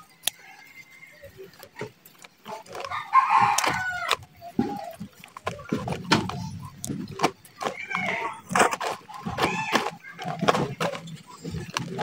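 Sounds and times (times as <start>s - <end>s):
rooster crowing: 2.9s - 4.2s.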